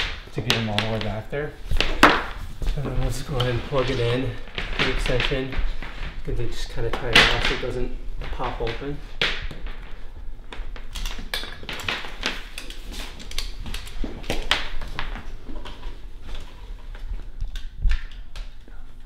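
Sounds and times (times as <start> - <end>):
cord handling clicks and rustles: 0.3 - 19.0.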